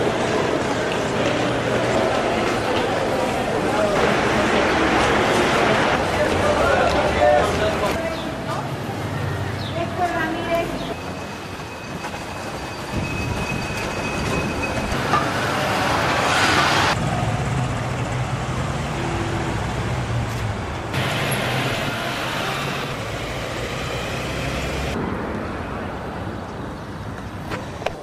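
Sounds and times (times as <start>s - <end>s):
street traffic: 0.0s - 28.0s.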